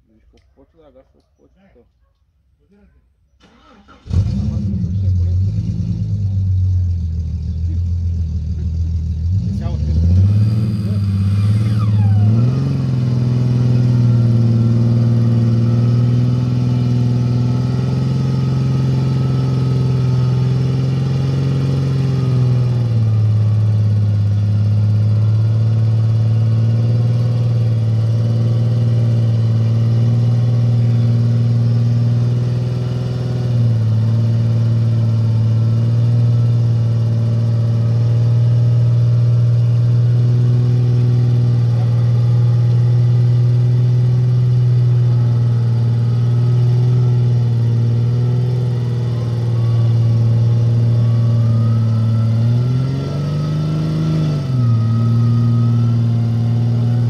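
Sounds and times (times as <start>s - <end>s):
engine running under load: 3.4s - 57.0s
short falling whistle: 51.2s - 56.4s.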